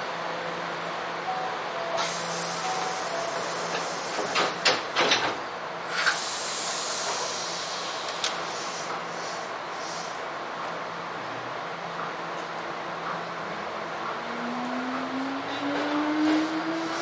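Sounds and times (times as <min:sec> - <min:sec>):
low hum of stopped train: 0:00.0 - 0:17.0
train doors closing clunks: 0:01.3 - 0:09.3, 0:11.9 - 0:17.0
compressed air hiss: 0:02.0 - 0:04.4, 0:05.9 - 0:10.2.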